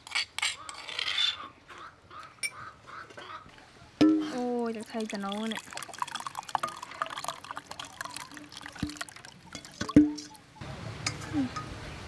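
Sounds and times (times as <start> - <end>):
thick sauce pouring and dripping: 4.2 - 10.4.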